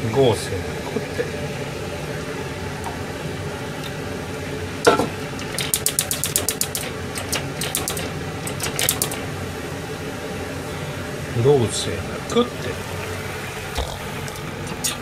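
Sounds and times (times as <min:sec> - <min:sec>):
steady low hum: 0:00.0 - 0:15.0
stove igniter clicking: 0:04.9 - 0:09.3.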